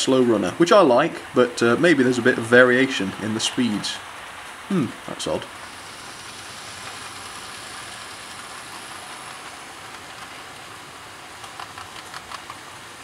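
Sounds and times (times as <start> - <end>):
model trains whirring on rails: 0.0 - 13.0
faint clicks: 11.4 - 12.6.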